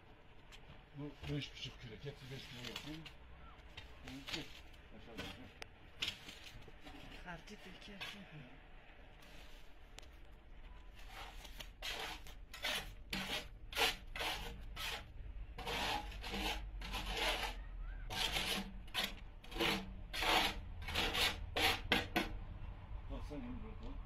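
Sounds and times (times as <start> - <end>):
wet concrete scraping: 11.0 - 22.2.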